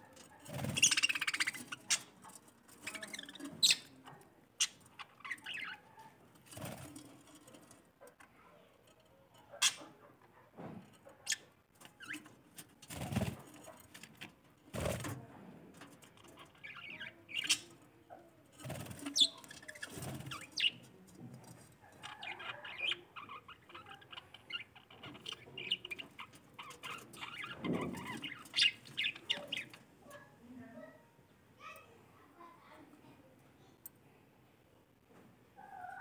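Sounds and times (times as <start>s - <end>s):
budgerigars chirping: 0.7s - 2.0s, 26.7s - 29.8s.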